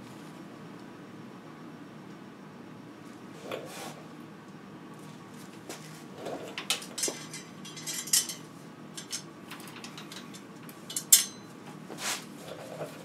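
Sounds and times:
metallic clinks of bicycle parts: 7.0s - 8.4s, 9.0s - 11.4s.

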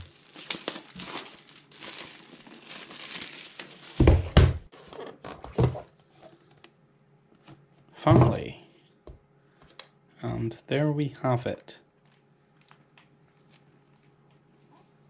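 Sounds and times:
plastic shrink-wrap crinkling: 0.0s - 4.3s.

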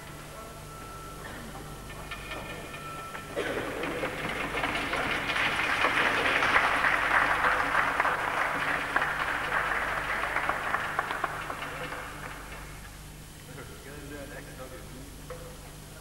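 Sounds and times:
many hands clapping: 3.4s - 13.0s.

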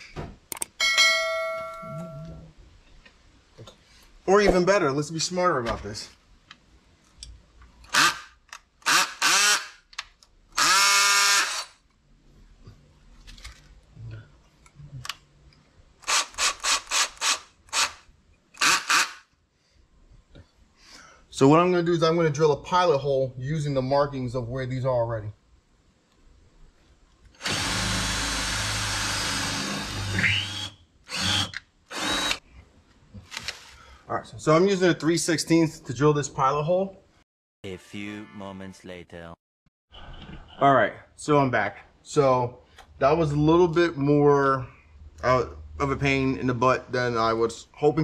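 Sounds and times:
cordless drill motor whining: 27.4s - 32.4s.

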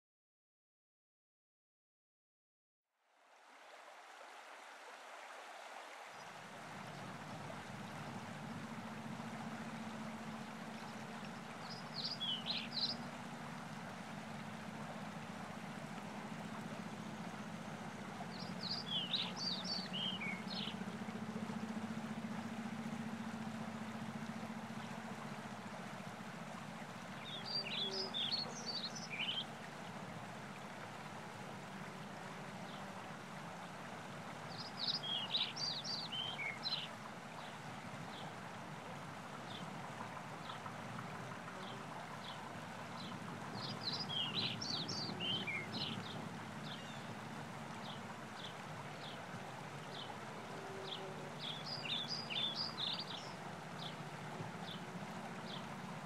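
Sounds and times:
flowing river water: 3.0s - 56.0s
songbird singing: 6.2s - 31.1s, 31.7s - 33.6s, 34.4s - 38.5s, 39.3s - 56.0s
low hum: 6.7s - 36.3s.

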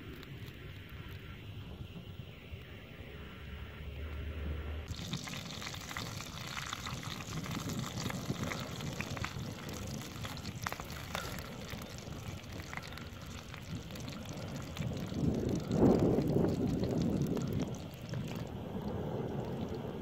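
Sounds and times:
meat sizzling on hot stone: 4.9s - 19.5s
juices spitting and popping: 4.9s - 20.0s.

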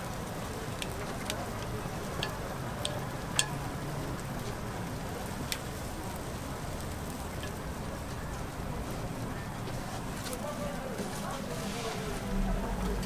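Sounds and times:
batter sizzling in a hot mold: 0.1s - 12.3s.

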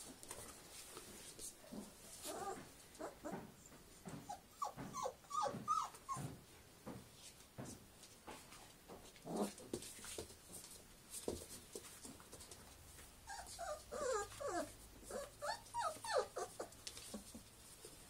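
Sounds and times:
puppies rustling and knocking: 0.0s - 18.0s
puppies whimpering: 4.2s - 6.3s, 13.3s - 16.8s.

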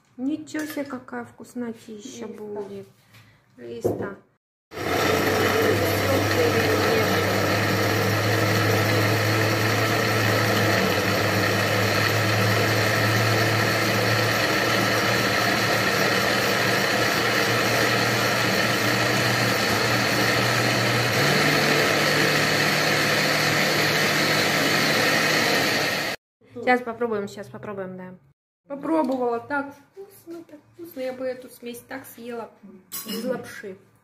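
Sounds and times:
blender motor running: 4.7s - 26.2s.

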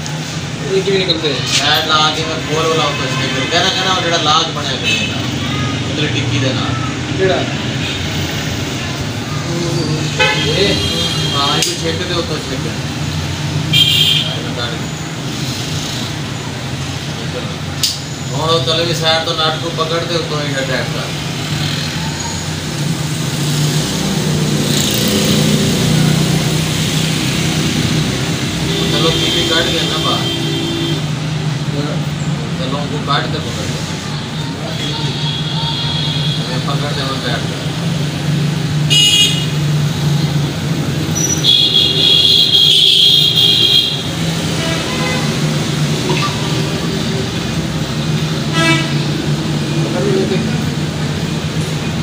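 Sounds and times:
vehicle horns honking: 2.0s - 5.8s, 10.0s - 11.8s, 13.7s - 14.5s, 28.5s - 31.2s, 34.7s - 36.7s, 38.9s - 39.7s, 41.2s - 45.6s, 48.4s - 49.2s.

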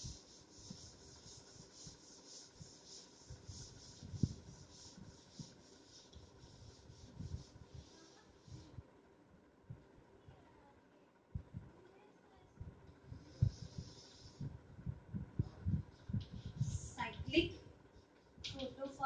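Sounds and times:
cloth wiping chalkboard: 0.0s - 8.8s, 13.2s - 14.4s.

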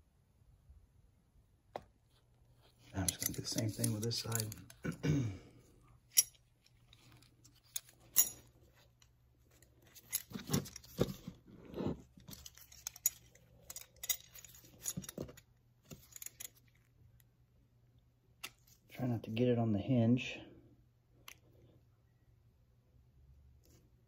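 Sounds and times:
metal clinks and scrapes: 2.6s - 5.0s, 5.9s - 16.9s.

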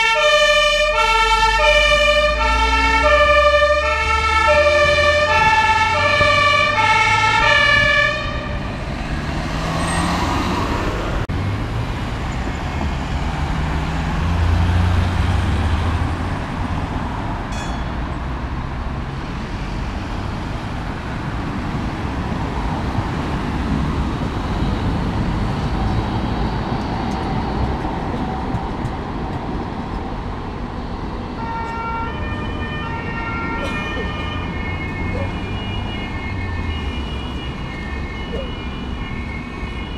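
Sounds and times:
two-tone siren: 0.0s - 9.0s, 31.4s - 39.9s
street traffic: 0.0s - 39.9s.

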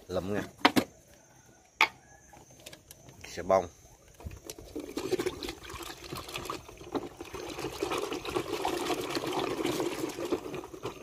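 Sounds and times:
water sloshing in a metal basin: 2.3s - 11.0s.

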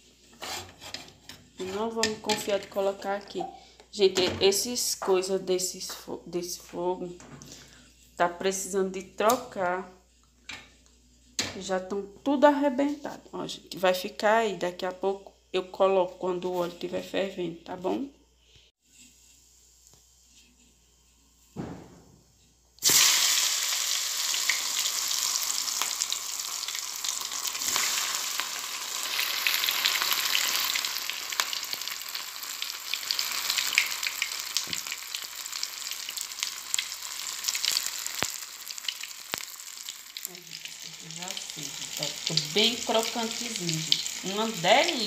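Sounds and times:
chicken frying in oil: 22.8s - 45.0s.

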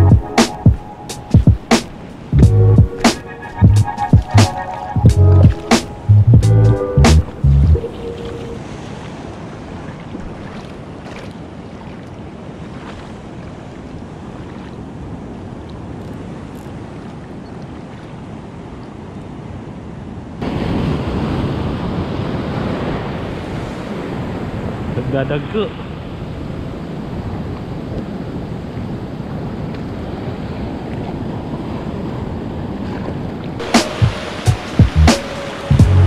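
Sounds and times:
wind buffeting microphone: 0.0s - 17.5s
foaming surf around rocks: 8.0s - 10.2s, 10.8s - 35.8s
water washing over rocks: 8.0s - 15.0s, 32.9s - 36.0s.

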